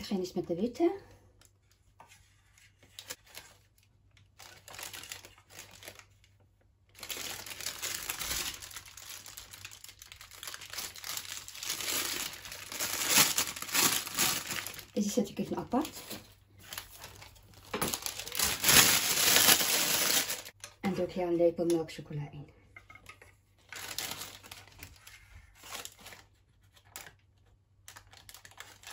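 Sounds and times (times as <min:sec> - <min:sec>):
plastic piping bag crinkling: 0:02.9 - 0:20.7, 0:23.6 - 0:28.9.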